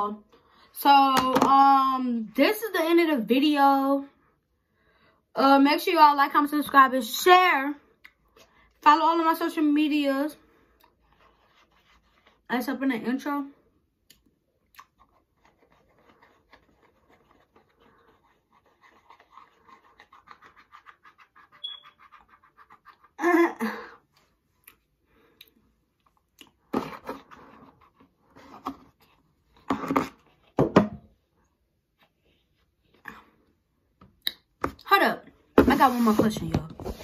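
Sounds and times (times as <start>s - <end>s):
wet licking and lip-smacking: 14.0s - 15.6s.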